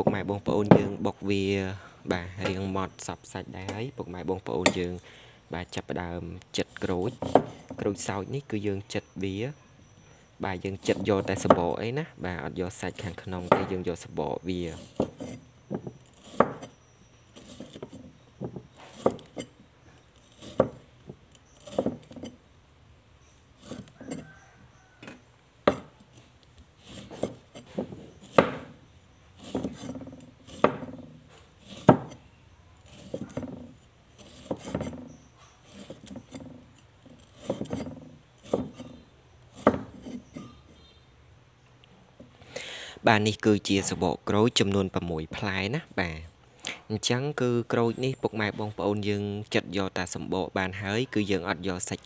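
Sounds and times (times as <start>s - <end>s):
cleaver chopping on wooden board: 0.0s - 1.0s, 7.1s - 7.6s, 13.4s - 13.8s, 14.8s - 16.8s, 20.3s - 22.3s, 25.0s - 26.0s, 26.8s - 28.8s, 29.4s - 32.2s, 32.9s - 36.5s, 37.3s - 40.4s.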